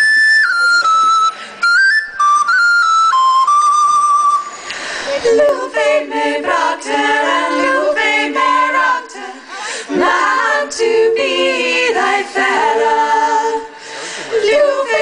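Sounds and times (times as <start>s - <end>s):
female choir singing in harmony: 5.1s - 15.0s.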